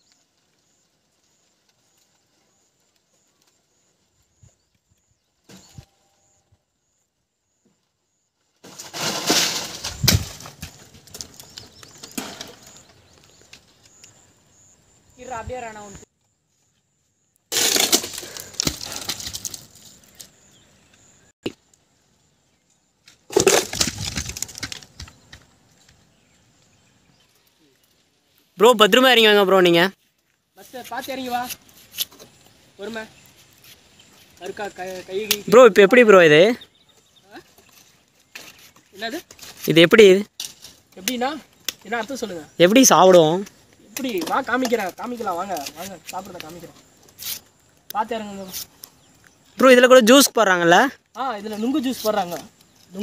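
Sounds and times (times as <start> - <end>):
fruit bunches crashing on ground: 8.6 - 12.9, 17.5 - 20.0, 23.3 - 25.2.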